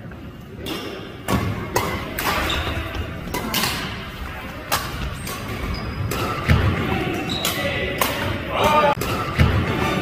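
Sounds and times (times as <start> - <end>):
racket hitting shuttlecock: 0.7 - 4.0, 4.7 - 6.8, 7.4 - 9.9.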